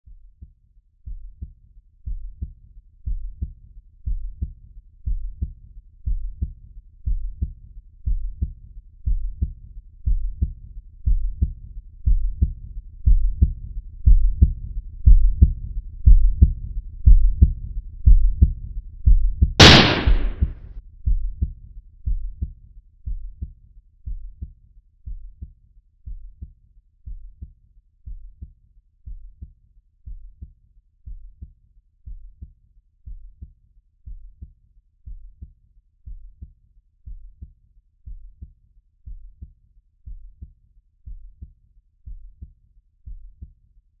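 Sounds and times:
heartbeat thumps: 2.1 - 20.5.

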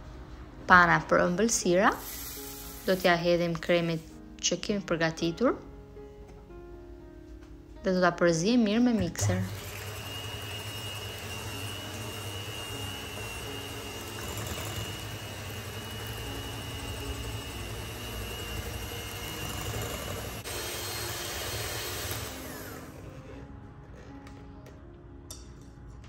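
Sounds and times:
electric hand mixer whipping cream: 9.2 - 23.4.

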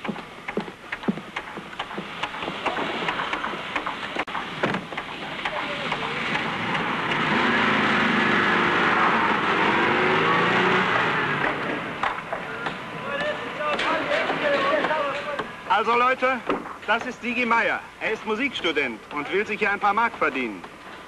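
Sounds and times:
sharp knocks: 0.0 - 7.3, 10.9 - 15.6, 16.4 - 17.3
motor engine running: 0.0 - 13.7.

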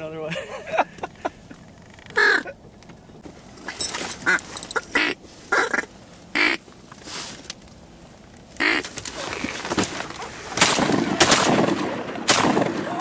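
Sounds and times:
duck call quacks: 2.2 - 2.5, 4.2 - 6.6, 8.6 - 8.8.

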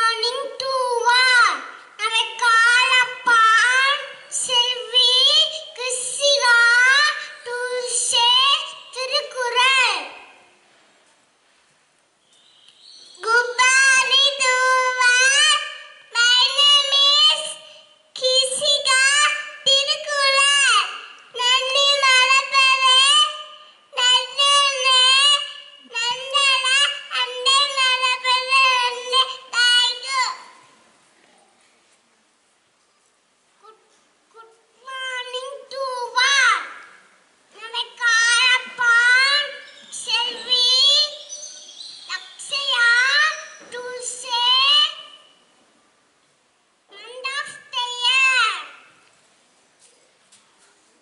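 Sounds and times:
child singing into a microphone: 0.0 - 10.3, 13.2 - 30.6, 37.6 - 41.4, 42.1 - 45.2, 46.9 - 48.8.

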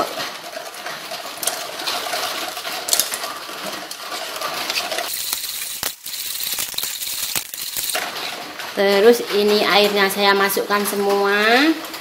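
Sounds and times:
ladle scraping a pot: 4.6 - 8.0.

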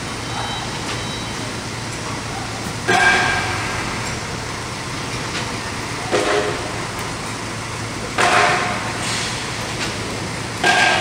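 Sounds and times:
truck diesel engine running: 0.0 - 11.0
short warning tone: 0.1 - 1.5.

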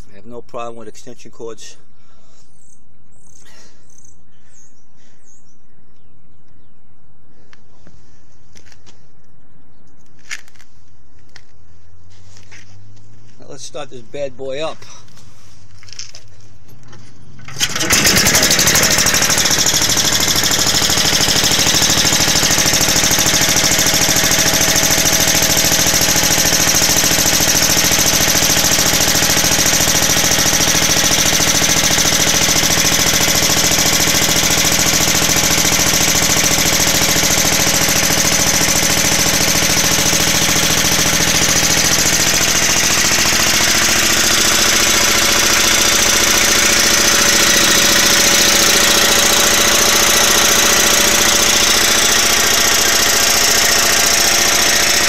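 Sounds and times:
generator engine running: 14.6 - 55.0.

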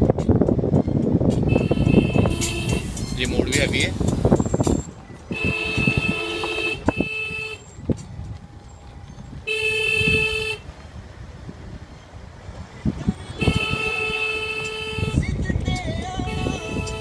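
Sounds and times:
car engine and road noise: 0.0 - 17.0
car horn blasts: 1.4 - 3.8, 4.6 - 7.6, 9.5 - 10.6, 13.4 - 15.4, 16.2 - 17.0.

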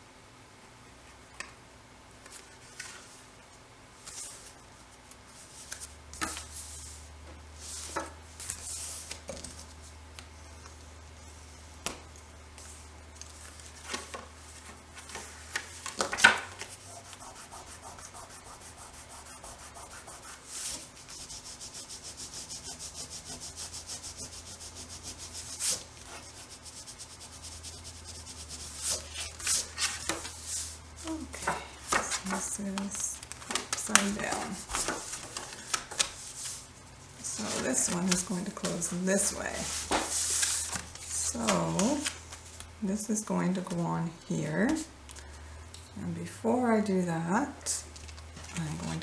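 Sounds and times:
paper and card rubbing: 16.6 - 31.3, 31.9 - 42.2.

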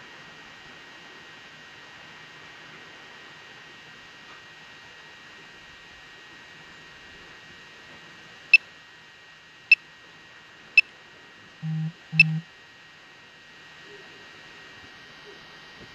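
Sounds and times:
sharp electronic ticks: 11.6 - 12.4
short low buzzes: 11.6 - 12.5.

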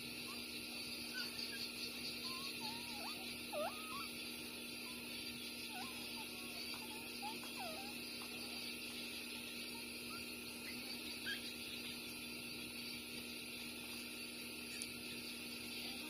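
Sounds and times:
steady background hum: 0.0 - 16.0
puppies squeaking: 1.1 - 4.2, 4.8 - 8.7, 9.4 - 11.6.

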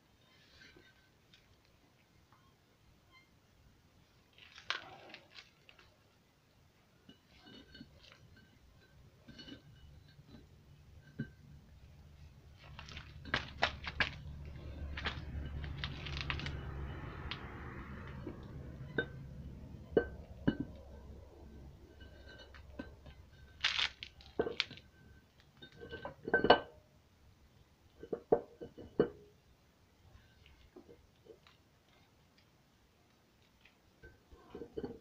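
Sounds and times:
metal clinks and knocks: 7.0 - 26.8, 33.6 - 35.0
low metal scraping rumble: 7.3 - 25.0.

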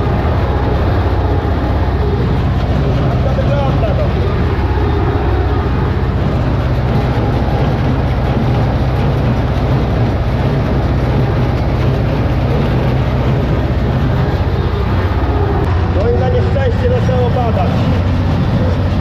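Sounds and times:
hay baler working: 0.0 - 19.0
tractor diesel engine running: 0.0 - 19.0.

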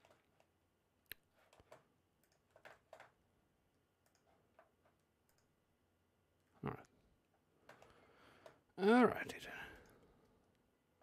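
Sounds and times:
computer mouse clicks: 1.1 - 3.2, 4.0 - 5.5, 7.6 - 8.6.

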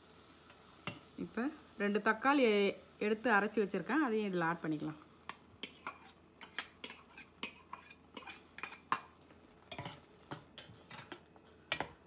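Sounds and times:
metal spoon scraping and clinking: 5.6 - 11.9.

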